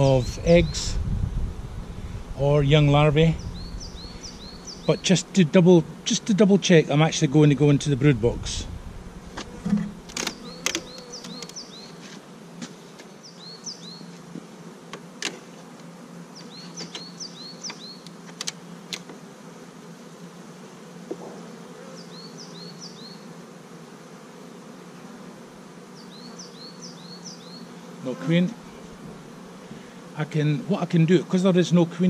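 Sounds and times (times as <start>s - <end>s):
bees buzzing: 0.0s - 32.0s
sharp clicks and knocks: 9.4s - 11.6s.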